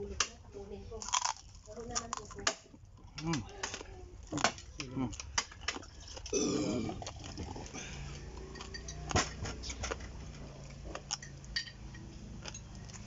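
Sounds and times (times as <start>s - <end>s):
cutlery clicks and clinks: 8.4s - 10.2s, 11.0s - 13.0s.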